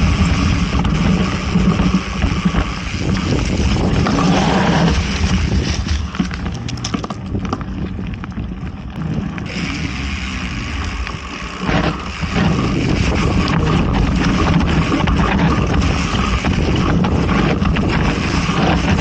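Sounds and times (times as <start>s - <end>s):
bike clicks and rattles: 0.0s - 19.0s
tyre rumble: 0.0s - 19.0s
wind buffeting microphone: 0.0s - 19.0s.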